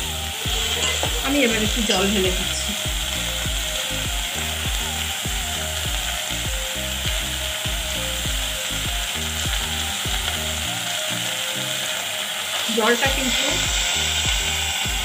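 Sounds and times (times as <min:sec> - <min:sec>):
background music with steady beat: 0:00.0 - 0:15.0
rice and onions sizzling in oil: 0:00.0 - 0:15.0.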